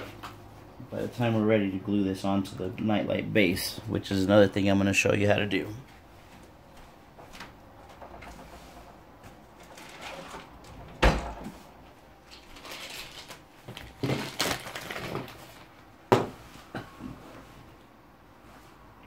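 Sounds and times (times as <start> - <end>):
objects clattering and rustling: 7.1 - 17.8.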